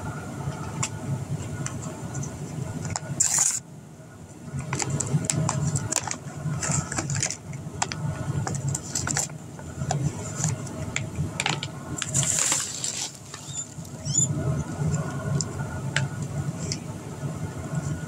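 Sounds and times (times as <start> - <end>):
packaging rustle: 12.0 - 14.0.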